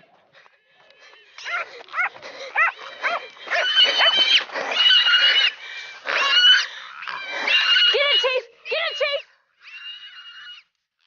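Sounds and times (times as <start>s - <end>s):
dog barks: 1.4s - 4.3s
pig squealing: 1.4s - 10.7s.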